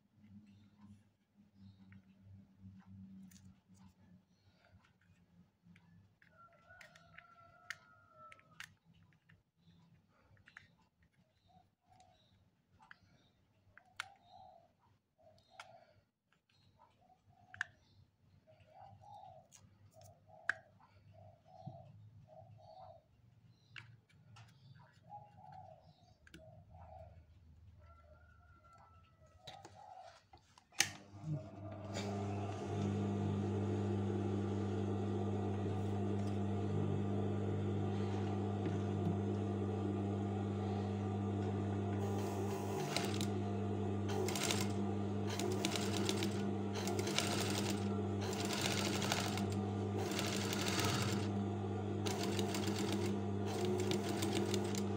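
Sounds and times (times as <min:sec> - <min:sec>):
sewing machine humming: 0:31.0 - 0:54.9.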